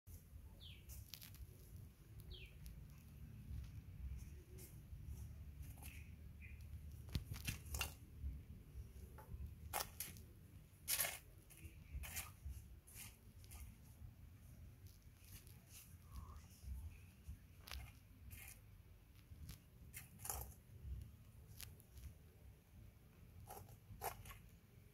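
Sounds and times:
scratches and clicks on stone: 0:09.1 - 0:13.9, 0:17.6 - 0:22.2, 0:23.3 - 0:24.6.

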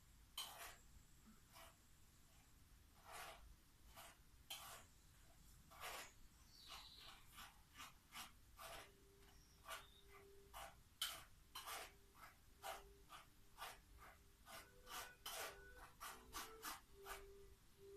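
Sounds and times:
spoon scraping mesh strainer: 0:00.4 - 0:00.9, 0:03.0 - 0:04.9, 0:05.7 - 0:17.4.

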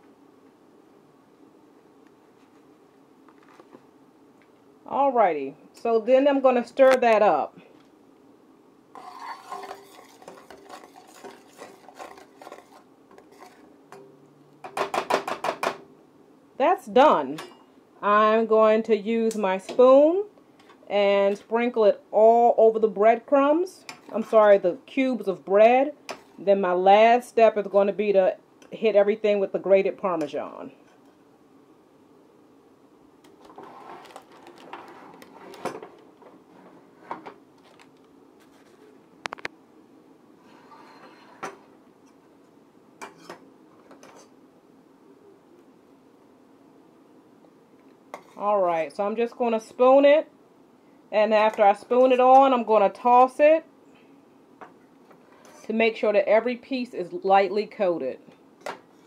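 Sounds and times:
metal spoon scraping saucepan: 0:09.0 - 0:13.7.

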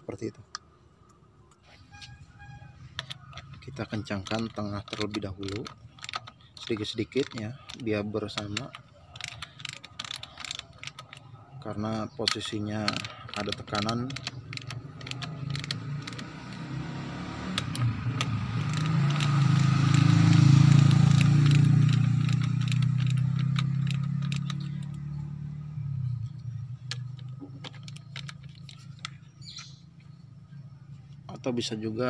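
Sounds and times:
socket ratchet clicking: 0:02.9 - 0:25.2, 0:26.3 - 0:29.8
passing vehicle engine hum: 0:13.0 - 0:31.4.

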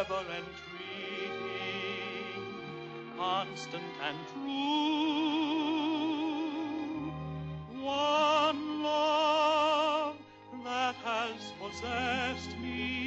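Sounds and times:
man singing operatically: 0:00.0 - 0:13.0
soft instrumental accompaniment: 0:00.0 - 0:13.0.

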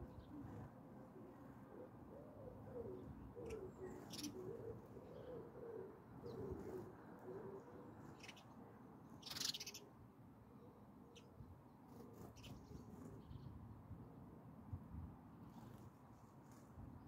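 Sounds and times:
pigeon cooing: 0:00.0 - 0:08.1
small birds chirping: 0:03.4 - 0:05.4, 0:08.1 - 0:08.6, 0:09.2 - 0:09.9, 0:12.2 - 0:13.5.

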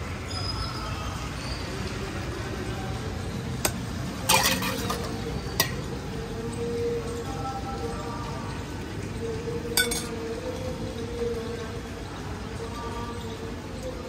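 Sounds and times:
street noise: 0:00.0 - 0:14.0
utensils clinking and knocking: 0:03.6 - 0:05.9, 0:09.8 - 0:10.3.

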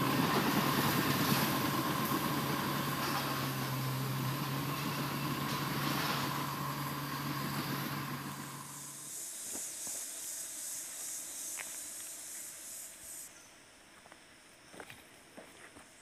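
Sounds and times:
diesel engine idling: 0:00.0 - 0:11.6
insects hissing: 0:00.0 - 0:15.2.

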